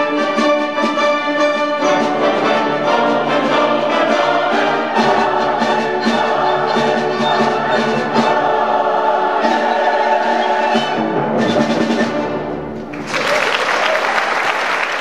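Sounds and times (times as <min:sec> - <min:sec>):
choir and orchestra: 0:00.0 - 0:13.0
audience applause: 0:12.9 - 0:15.0.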